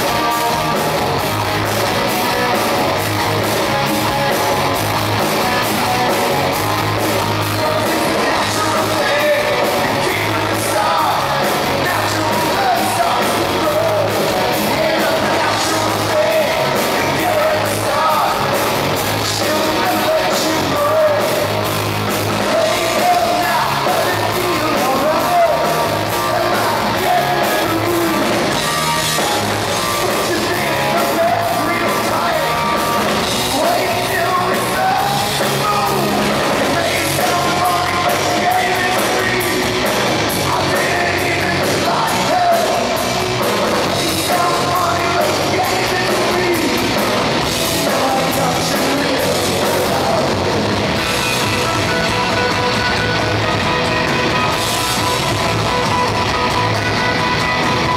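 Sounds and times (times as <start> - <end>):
bass guitar: 0.0 - 57.9
drums: 0.0 - 57.9
electric guitar: 0.0 - 57.9
person singing: 6.8 - 52.7.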